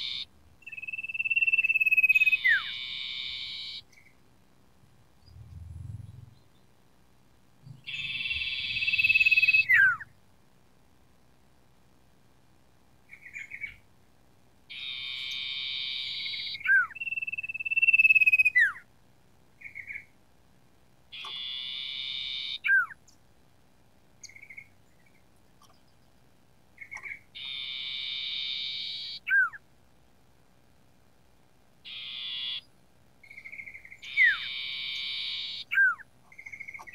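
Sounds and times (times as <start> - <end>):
bird chirps: 0.0 - 4.2, 5.2 - 6.8, 7.6 - 10.1, 13.1 - 13.8, 14.7 - 18.8, 19.6 - 20.1, 21.1 - 23.2, 24.2 - 26.2, 26.8 - 29.6, 31.8 - 36.9.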